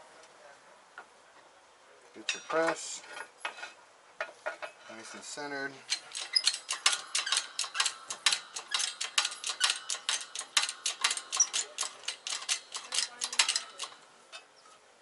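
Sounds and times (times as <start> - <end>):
rapid metallic clicking of press jack: 5.9 - 14.0.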